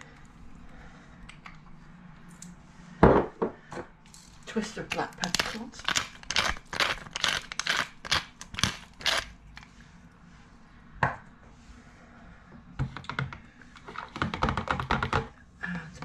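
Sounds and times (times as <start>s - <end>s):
pepper mill grinding clicks: 5.2s - 9.3s.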